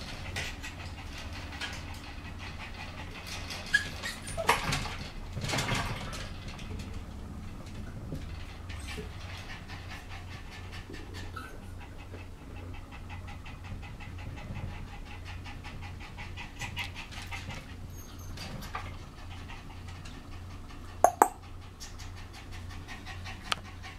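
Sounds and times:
dog panting: 0.0 - 4.2, 8.4 - 17.9, 18.6 - 23.9.

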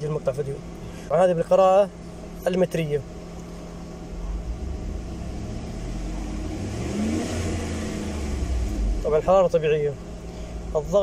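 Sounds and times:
car engine revving up: 4.1 - 9.4.

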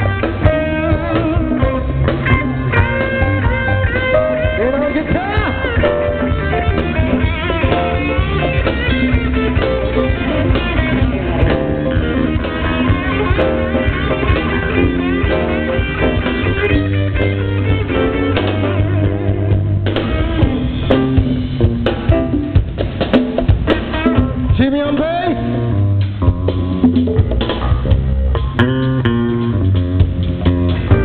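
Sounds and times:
drum kit: 0.0 - 31.0
electric guitar: 0.0 - 31.0.

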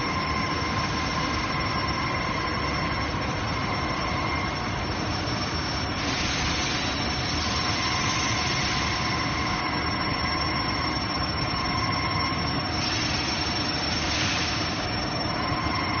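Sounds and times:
high-pitched machine whine: 0.0 - 16.0
machine whirring: 0.0 - 16.0.

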